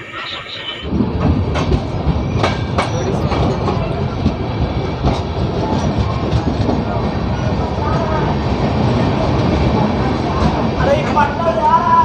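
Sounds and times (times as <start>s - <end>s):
train rumbling on rails: 0.0s - 12.0s
wheels clacking over rail joints: 0.9s - 9.0s.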